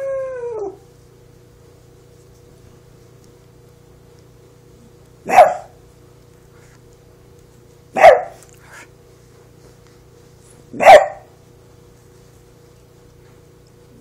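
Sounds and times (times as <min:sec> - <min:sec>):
faint low hum: 0:00.0 - 0:14.0
small dog barking: 0:05.2 - 0:05.8, 0:07.9 - 0:08.5, 0:10.7 - 0:11.4.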